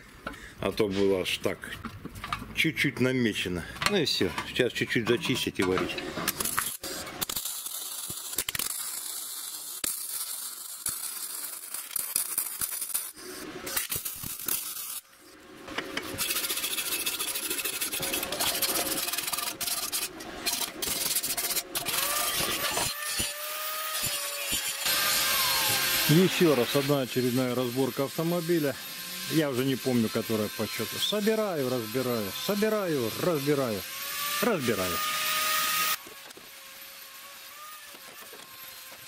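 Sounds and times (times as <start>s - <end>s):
welder arc crackling hiss: 6.4s - 15.3s, 24.0s - 33.6s
angle grinder whine: 15.8s - 39.0s.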